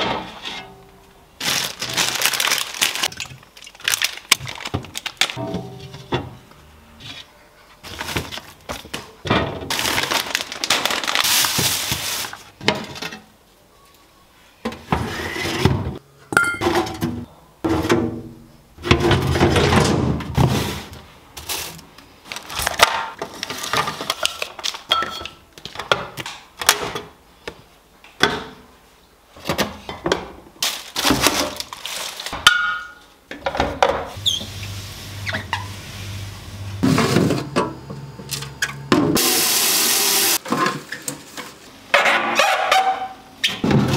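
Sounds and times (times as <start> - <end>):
glass jars clinking on shelves: 16.3 - 17.1.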